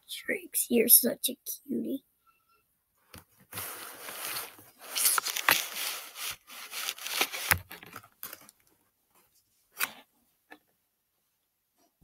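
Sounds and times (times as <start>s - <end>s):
scraping against microphone: 3.4s - 8.0s.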